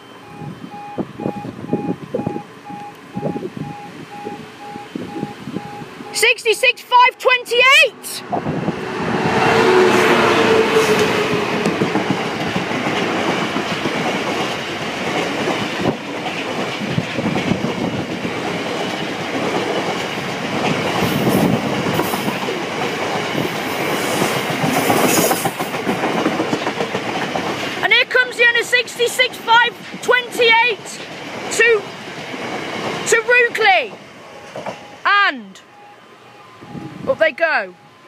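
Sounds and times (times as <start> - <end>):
diesel locomotive engine: 0.0 - 38.0
wagon wheels rumbling on rail: 7.6 - 38.0.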